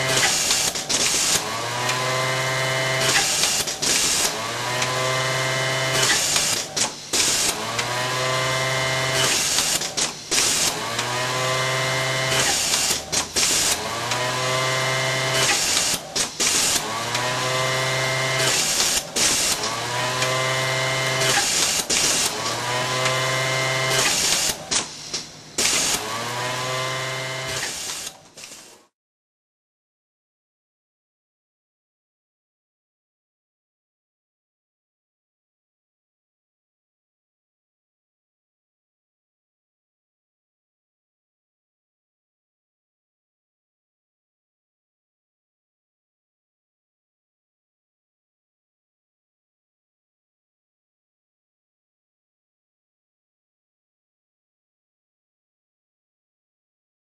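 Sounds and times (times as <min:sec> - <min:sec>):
sewing motor whining: 0:00.0 - 0:28.9
short pneumatic hiss: 0:06.1 - 0:07.5, 0:15.5 - 0:16.8, 0:27.5 - 0:28.8.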